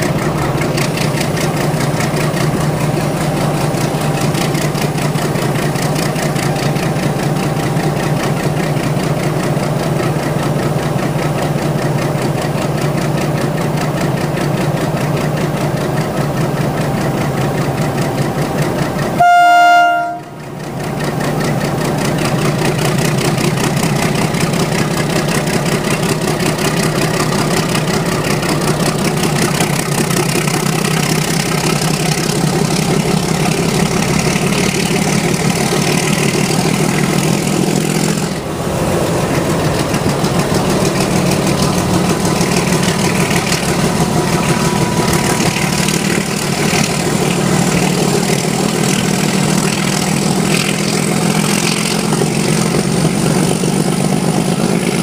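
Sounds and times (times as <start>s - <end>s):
locomotive engine running: 0.0s - 55.0s
train rattling: 0.0s - 55.0s
train horn blast: 18.4s - 20.6s.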